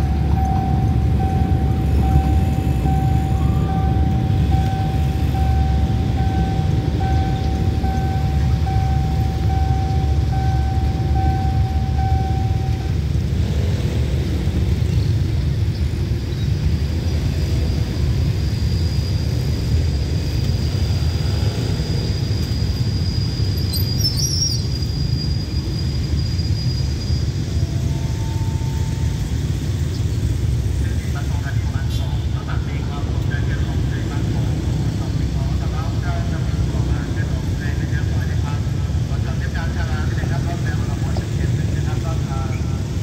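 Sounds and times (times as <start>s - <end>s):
level crossing warning chime: 0.0s - 13.1s, 27.6s - 29.4s
train rumbling: 0.0s - 43.0s.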